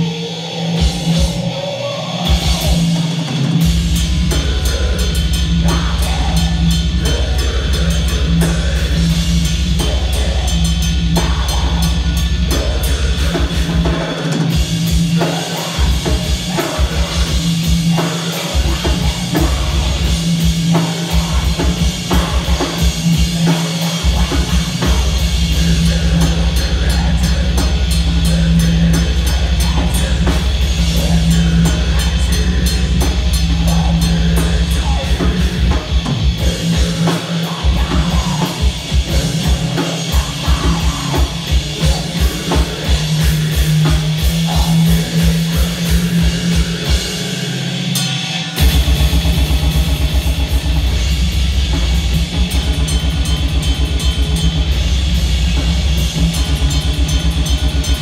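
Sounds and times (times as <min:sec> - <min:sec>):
distorted electric guitar: 0:00.0 - 0:58.0
fast heavy drumming: 0:00.0 - 0:58.0
person singing into a microphone: 0:21.0 - 0:47.4.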